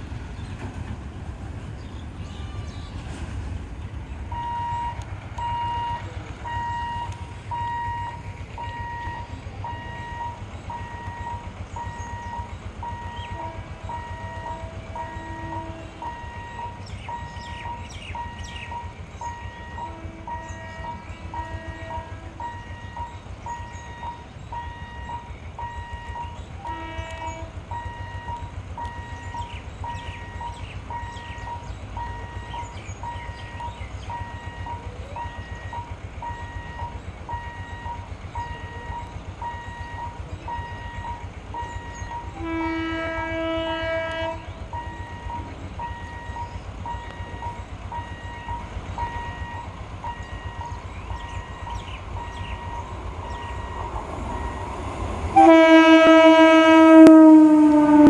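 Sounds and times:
level-crossing warning beeps: 0:04.3 - 0:42.4, 0:44.6 - 0:55.6
train horn: 0:12.0 - 0:16.8, 0:19.2 - 0:29.5, 0:34.3 - 0:48.5, 0:55.3 - 0:58.0.

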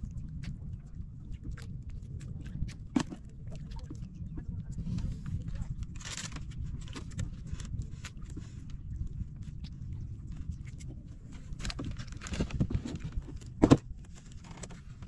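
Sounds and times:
low rumble: 0:00.0 - 0:15.0
knocks and clatter in boat: 0:02.4 - 0:04.0, 0:10.3 - 0:15.0.

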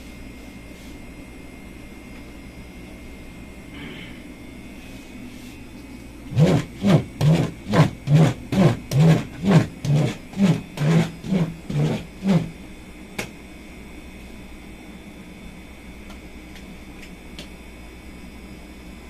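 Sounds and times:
dough docker rolling over dough: 0:06.3 - 0:12.6.

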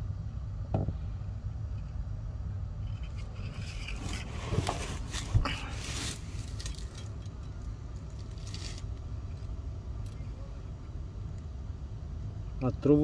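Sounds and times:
metal tape measure clattering: 0:05.9 - 0:07.3.

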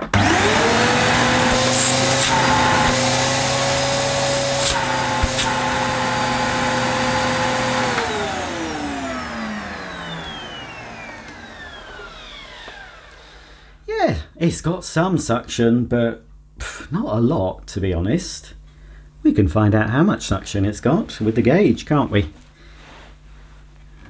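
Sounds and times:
vacuum cleaner running: 0:00.0 - 0:13.8.

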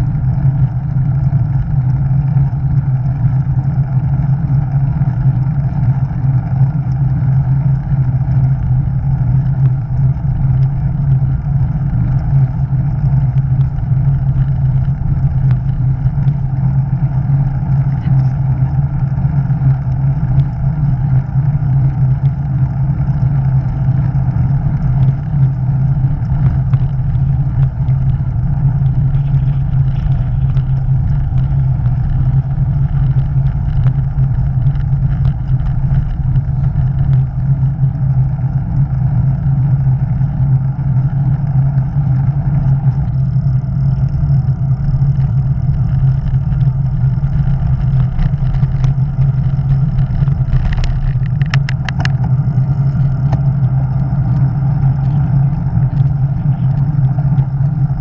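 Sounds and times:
constant low drone: 0:00.0 - 0:58.0
road noise: 0:00.0 - 0:58.0.

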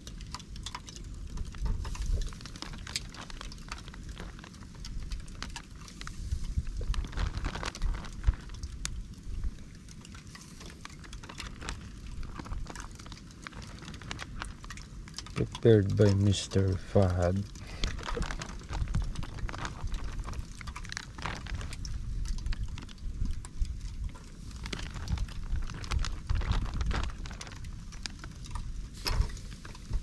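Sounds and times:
sharp pops and crackles: 0:00.0 - 0:30.0
chicken sizzling on grill: 0:08.6 - 0:11.2, 0:27.7 - 0:30.0.

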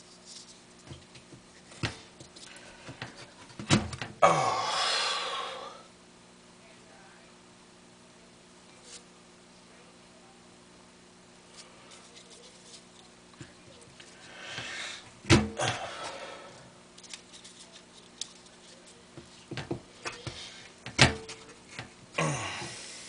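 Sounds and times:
paper balls crinkling: 0:11.5 - 0:14.8, 0:16.9 - 0:20.8.

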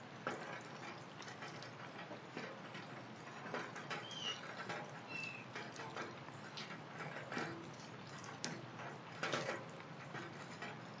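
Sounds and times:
rain pattering: 0:00.0 - 0:11.0
bird chirping: 0:04.0 - 0:04.4, 0:05.1 - 0:05.5.

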